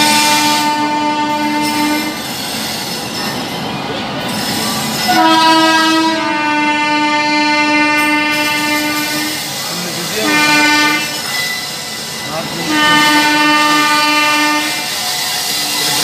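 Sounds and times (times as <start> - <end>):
train horn blasts: 0.0 - 2.2, 5.1 - 9.5, 10.2 - 11.3, 12.6 - 15.0
moving train running noise: 0.0 - 16.0.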